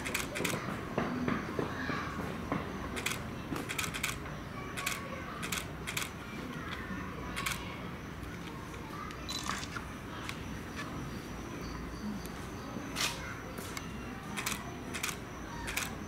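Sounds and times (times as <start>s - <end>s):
camera shutter clicks: 9.3s - 9.8s, 14.4s - 16.0s.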